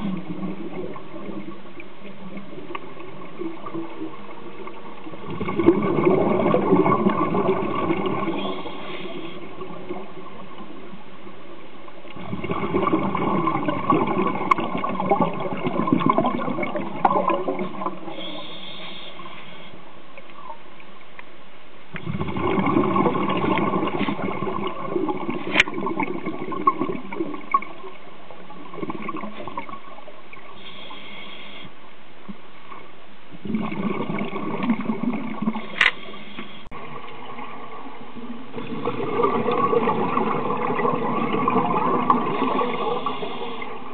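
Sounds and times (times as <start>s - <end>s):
bubbling exhaled air underwater: 0.0s - 10.7s, 12.2s - 18.6s, 21.9s - 30.6s, 33.3s - 43.9s
rush of water noise: 33.4s - 43.9s.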